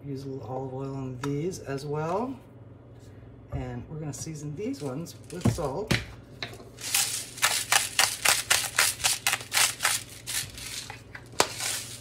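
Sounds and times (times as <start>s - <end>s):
salt grinder crunching: 6.8s - 12.0s.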